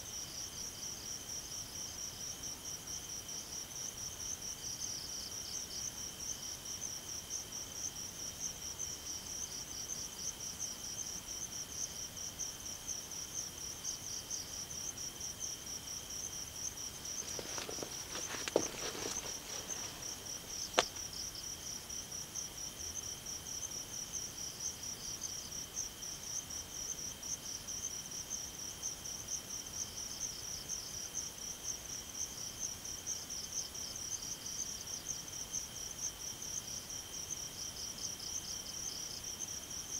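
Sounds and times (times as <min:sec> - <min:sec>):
crickets chirping: 0:00.0 - 0:39.9
brief rustle: 0:17.1 - 0:21.0.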